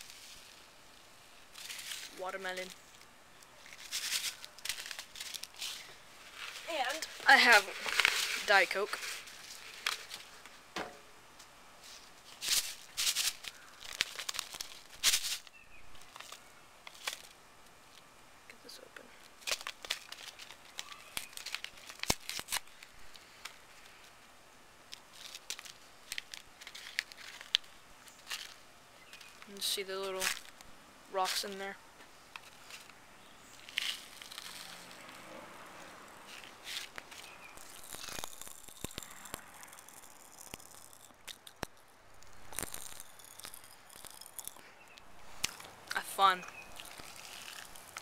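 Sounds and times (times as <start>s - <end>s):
candy wrapper crinkling: 1.5s - 10.5s, 12.2s - 18.0s, 19.2s - 24.2s, 24.8s - 31.7s, 32.3s - 35.2s, 36.1s - 48.0s
candy popping in mouth: 37.0s - 44.7s, 46.6s - 48.0s.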